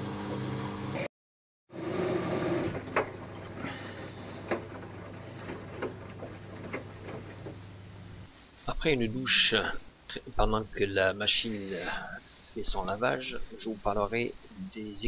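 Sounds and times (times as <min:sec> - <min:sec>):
washing machine motor hum: 0:00.0 - 0:01.0, 0:01.7 - 0:15.0
clothes and water sloshing: 0:02.6 - 0:08.6.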